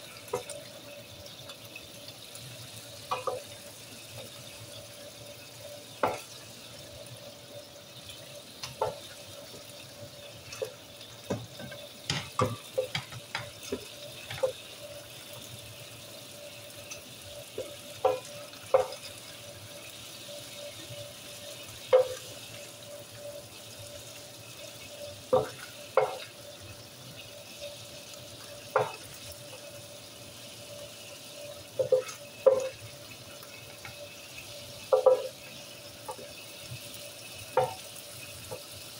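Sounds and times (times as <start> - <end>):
chicken sizzling in oil: 0.0 - 38.9
wooden spoon knocking on pan: 3.1 - 3.5, 6.0 - 6.3, 8.6 - 9.1, 10.6 - 14.6, 17.6 - 19.1, 21.9 - 22.2, 25.3 - 26.3, 28.7 - 29.0, 31.8 - 32.8, 34.9 - 35.4, 37.5 - 37.8.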